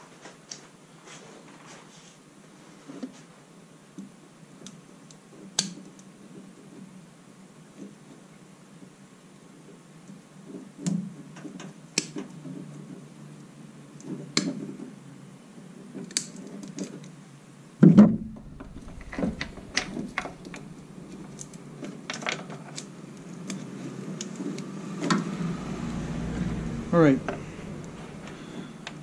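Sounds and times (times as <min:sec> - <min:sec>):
heavy thump: 0:17.9 - 0:21.4.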